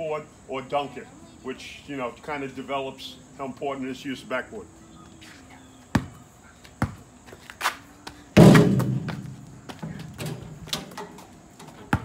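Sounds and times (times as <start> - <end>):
basketball banging on backboard: 8.4 - 9.3
basketball knocking on rim: 8.4 - 9.3.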